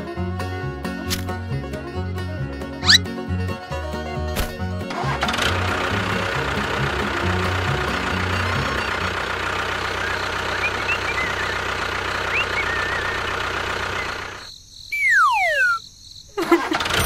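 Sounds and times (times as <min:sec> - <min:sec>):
music: 0:00.0 - 0:09.4
faint bird chirps: 0:02.8 - 0:03.0, 0:09.9 - 0:16.3
whistle sliding down in pitch: 0:02.8 - 0:03.0, 0:12.3 - 0:13.3, 0:14.9 - 0:15.8
tractor engine running: 0:04.4 - 0:14.5, 0:16.4 - 0:17.0.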